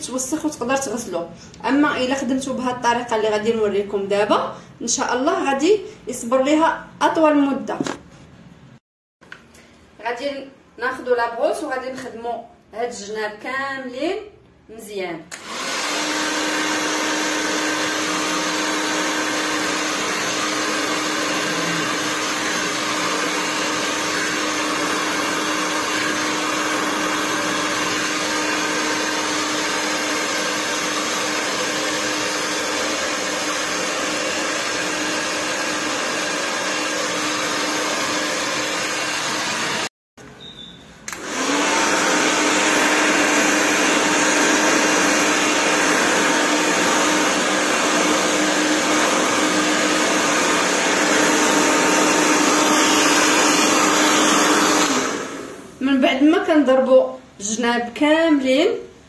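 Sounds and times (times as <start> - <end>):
hair dryer blowing: 15.3 - 40.0, 41.0 - 56.0.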